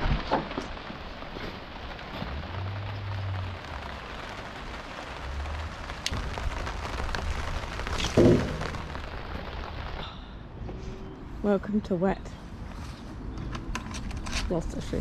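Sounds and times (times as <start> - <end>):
rain falling steadily: 0.0 - 15.0
thump: 8.0 - 8.7.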